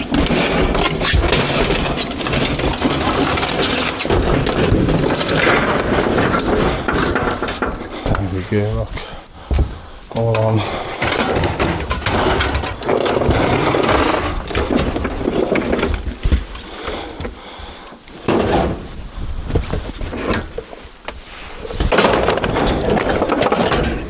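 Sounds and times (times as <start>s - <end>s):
scrap metal scraping and clattering: 0.0s - 8.8s, 10.5s - 16.3s.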